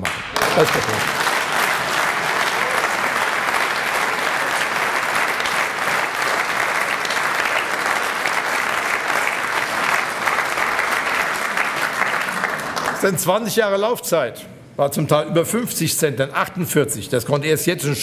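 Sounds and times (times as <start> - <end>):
audience applauding: 0.0 - 13.2.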